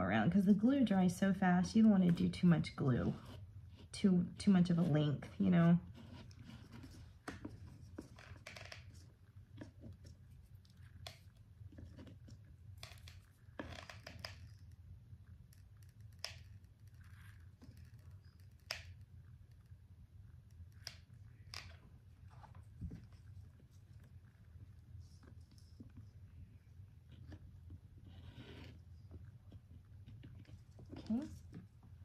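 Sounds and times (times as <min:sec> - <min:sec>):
low steady hum: 0:00.0 - 0:32.0.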